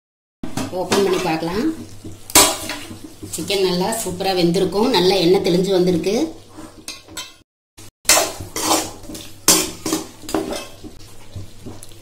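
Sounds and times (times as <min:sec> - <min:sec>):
metal ladle scraping a pot: 0:08.1 - 0:10.9.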